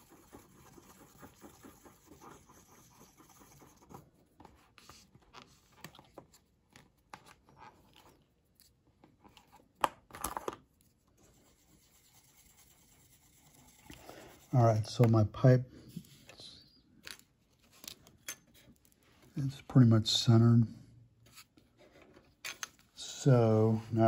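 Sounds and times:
stick scraping epoxy on paper: 0.0 - 4.0.

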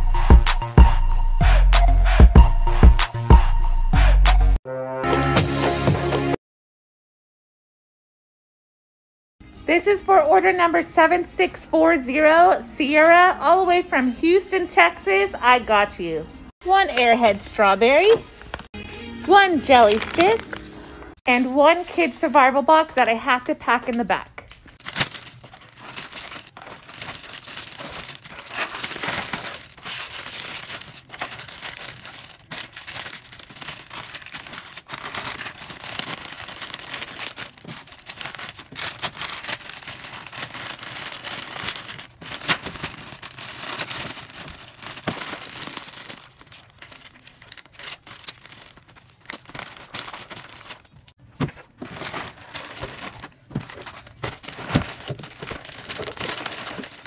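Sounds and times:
plastic bag crinkling: 17.2 - 18.7, 19.6 - 21.0, 24.4 - 57.0.

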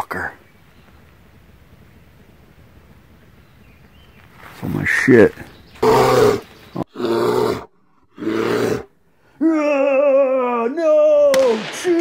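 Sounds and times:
bear growling and roaring: 5.8 - 9.0.

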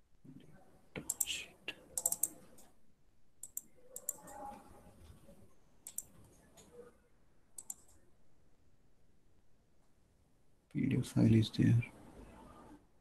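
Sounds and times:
computer mouse clicks: 1.0 - 1.4, 2.0 - 2.7, 3.4 - 4.6, 5.8 - 6.8, 7.6 - 8.0.

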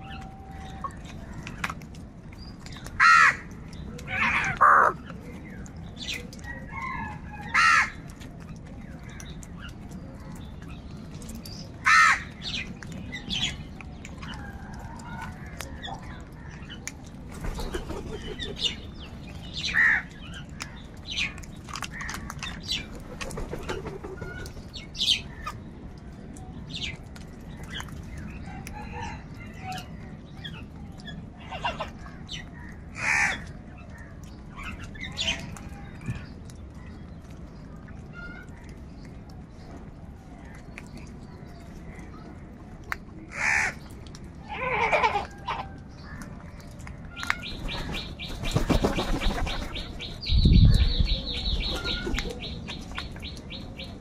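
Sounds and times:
crows cawing: 3.0 - 3.4, 4.2 - 5.0, 7.6 - 8.0, 11.8 - 12.3, 33.0 - 33.4, 43.3 - 43.8.

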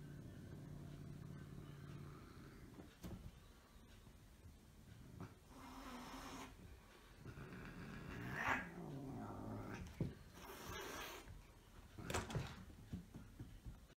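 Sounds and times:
cat growling: 7.2 - 11.3
cat hissing: 10.4 - 11.3.

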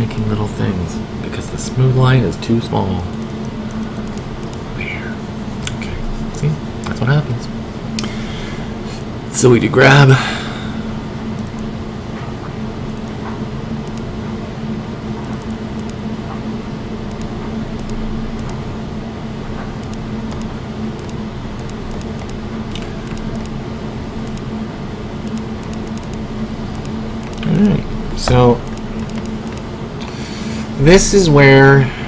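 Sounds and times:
low mechanical hum: 0.0 - 32.0
faint clicks: 28.7 - 29.6.

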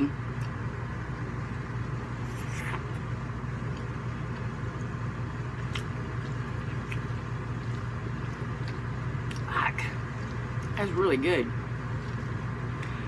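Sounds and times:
air conditioner humming: 0.0 - 13.0
eating clicks: 5.6 - 10.8.

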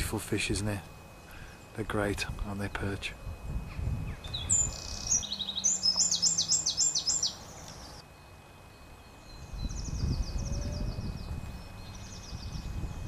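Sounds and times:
small songbird singing: 3.2 - 8.0, 8.7 - 13.0.

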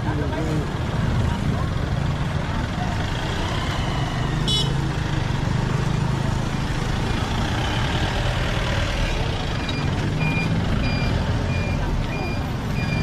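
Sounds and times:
reversing beeper: 9.6 - 13.0.

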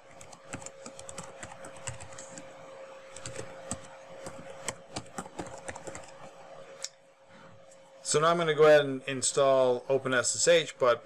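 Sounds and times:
faint steady hum: 0.0 - 11.0
typing on computer keyboard: 0.1 - 2.5, 3.1 - 6.3.

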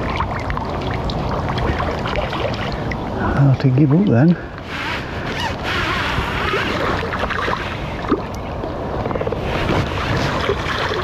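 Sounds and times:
fish thrashing in water: 0.0 - 3.2, 4.7 - 11.0
wind buffeting microphone: 0.0 - 11.0.

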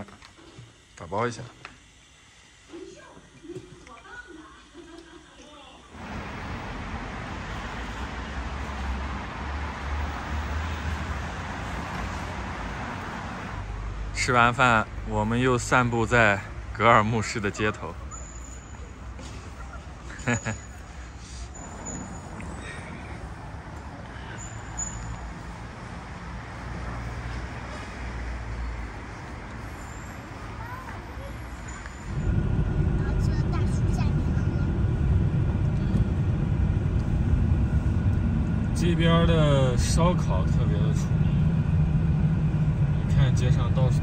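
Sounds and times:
city street traffic: 6.0 - 44.0
low rumble: 32.0 - 44.0.

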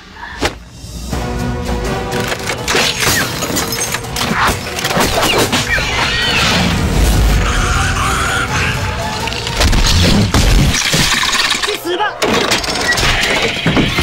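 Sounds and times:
dramatic film music: 0.0 - 14.0.

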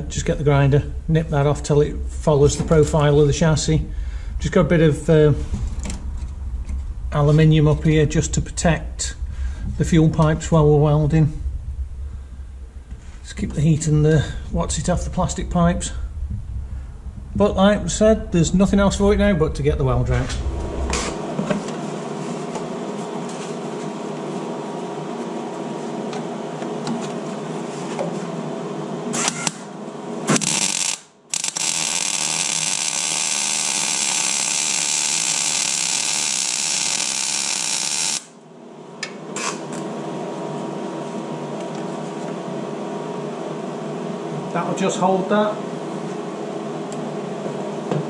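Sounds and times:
steady machine hum: 0.0 - 48.0
welding arc crackling hiss: 29.2 - 38.4.

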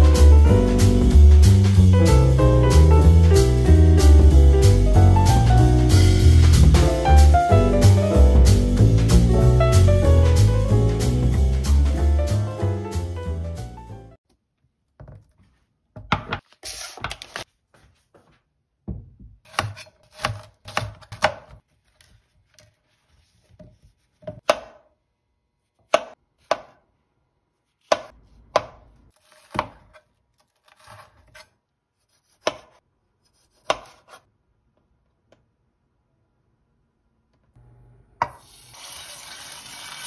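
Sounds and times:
knife chopping on cutting board: 19.5 - 21.6, 24.1 - 24.9, 25.8 - 26.8, 27.8 - 31.5, 32.1 - 34.2.

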